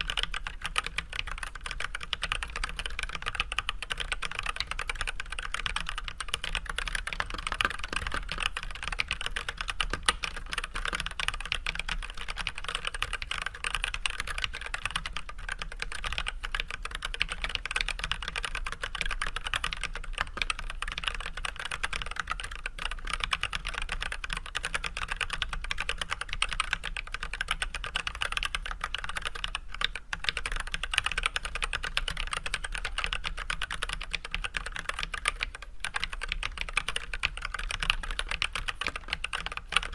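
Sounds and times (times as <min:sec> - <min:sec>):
mechanical keyboard typing: 0:00.0 - 0:39.9.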